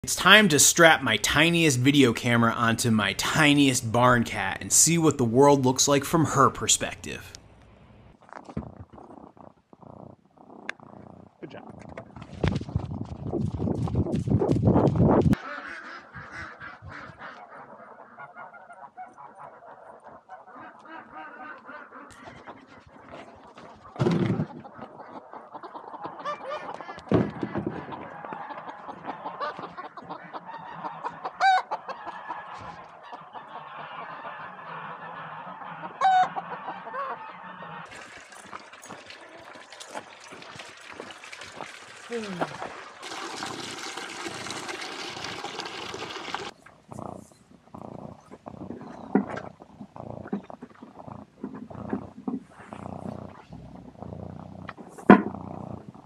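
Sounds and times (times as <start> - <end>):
chickens clucking: 15.4 - 38.2.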